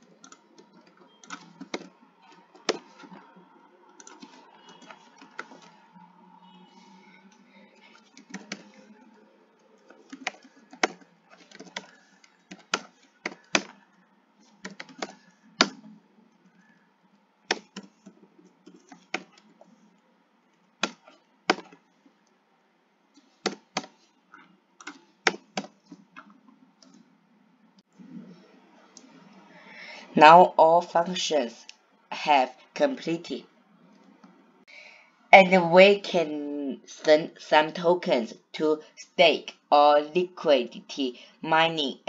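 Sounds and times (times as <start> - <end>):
computer keyboard typing: 0.0 - 5.8, 7.4 - 16.8, 17.5 - 19.8, 20.8 - 21.8, 23.2 - 27.1.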